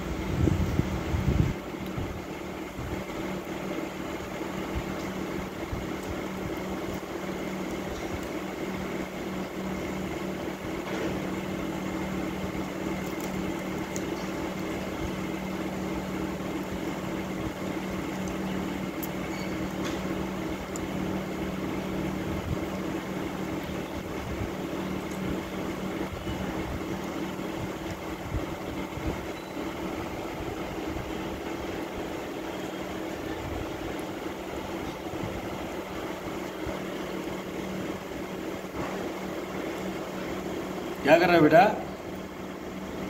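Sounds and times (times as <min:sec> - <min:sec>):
machine hum: 0:00.0 - 0:43.0.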